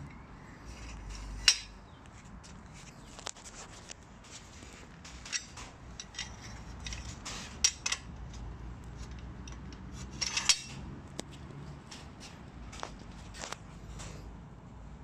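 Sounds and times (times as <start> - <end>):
metal arm clicking and knocking: 1.4 - 1.8, 5.1 - 11.3.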